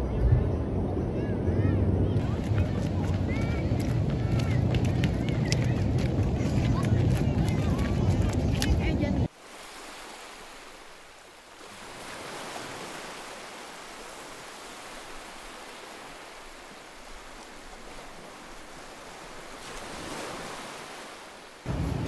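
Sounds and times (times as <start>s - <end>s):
low rumble: 0.0s - 9.3s, 21.7s - 22.0s
ocean surf breaking: 1.8s - 22.0s.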